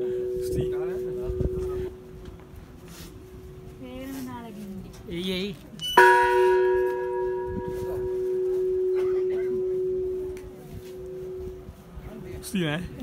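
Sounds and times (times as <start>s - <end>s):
large metal bell ringing: 0.0s - 2.1s, 5.8s - 11.7s.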